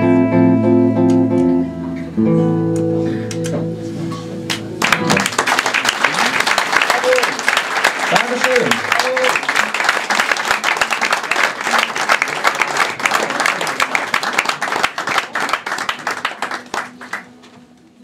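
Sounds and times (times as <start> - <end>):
audience clapping: 4.5 - 17.7.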